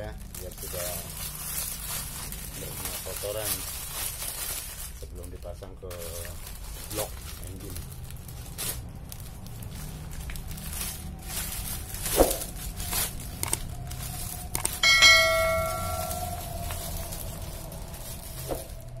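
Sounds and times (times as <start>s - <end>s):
plastic bag crinkling: 0.0s - 19.0s
bell ding: 14.8s - 16.4s.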